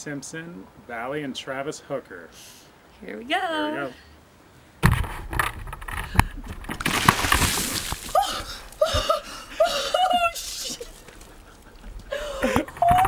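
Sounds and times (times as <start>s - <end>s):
buckets clattering: 4.9s - 9.2s
water pouring and splashing: 6.6s - 9.1s.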